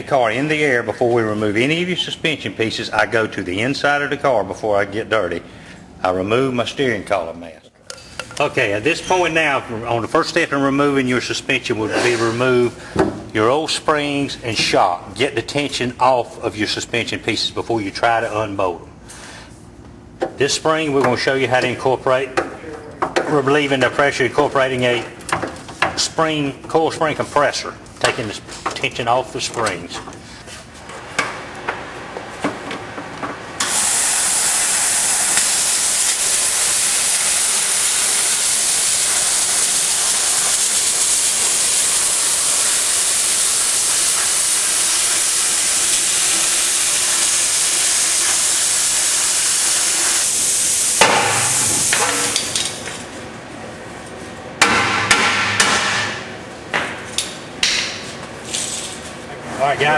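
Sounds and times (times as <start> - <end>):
plasma cutter hissing: 33.6 - 52.6.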